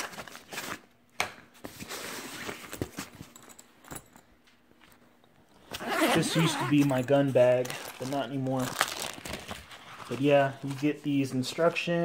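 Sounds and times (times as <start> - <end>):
fabric bag rustling: 5.8 - 11.9.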